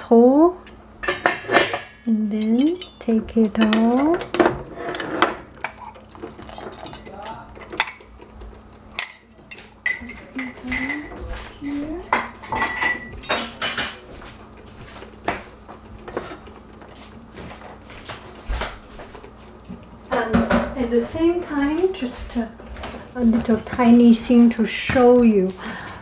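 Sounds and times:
glass jar and utensil clinking on pot: 1.7 - 4.2, 5.6 - 8.0, 12.2 - 14.0.

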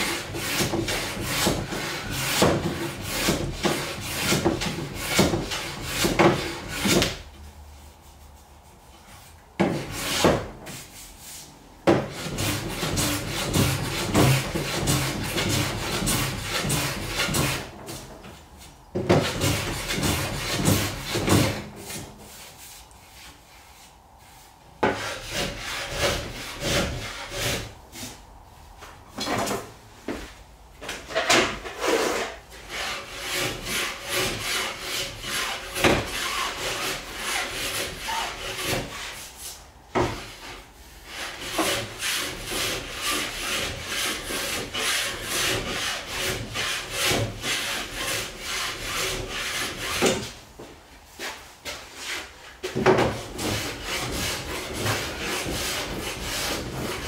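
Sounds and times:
hand plane scraping wood: 0.0 - 7.2, 9.0 - 28.2, 31.2 - 50.4, 51.2 - 57.0.

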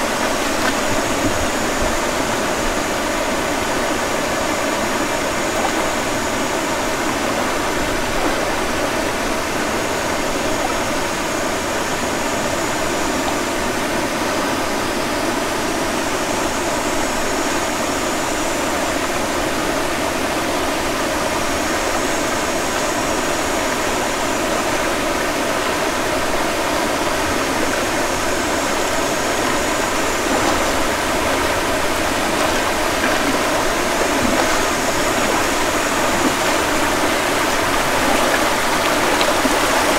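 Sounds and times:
stream water rushing over rocks: 0.0 - 39.9.

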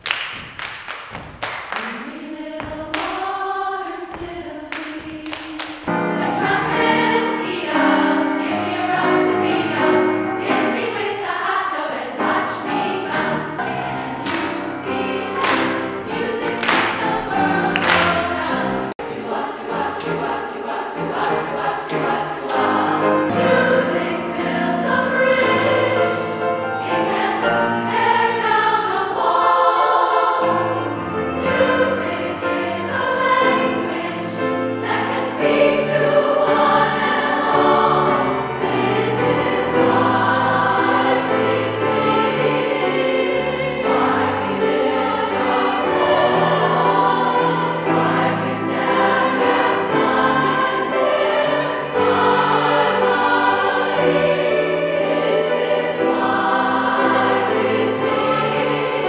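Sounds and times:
women's choir singing: 1.4 - 59.0
sharp percussive beats: 13.7 - 23.0.

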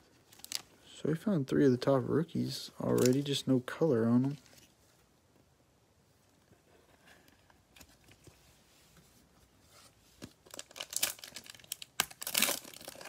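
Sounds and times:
plastic wrapper crinkling and tearing: 0.3 - 0.7, 2.9 - 3.4, 10.4 - 13.0
faint handling rustles: 2.7 - 5.5.

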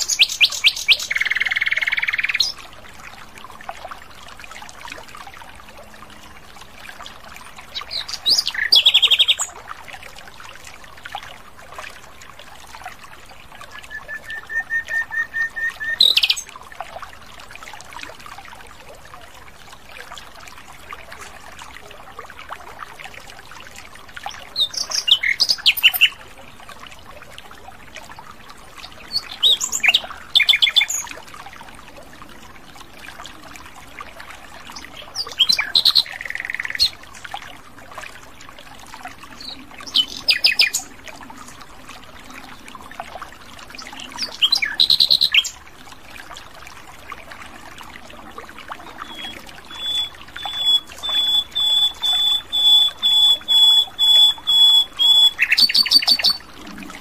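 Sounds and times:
nightingale singing: 13.7 - 16.5, 49.0 - 56.4.

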